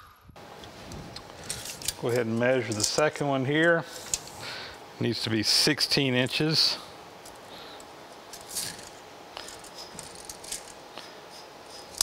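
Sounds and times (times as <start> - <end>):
clicks and rattles of steel tubing: 1.2 - 3.0.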